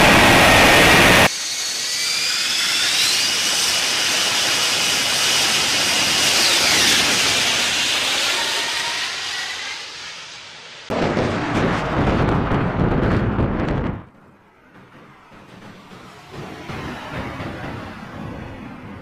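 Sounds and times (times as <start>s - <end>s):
jet engine roar: 0.0s - 19.0s
turbine whine: 0.0s - 19.0s.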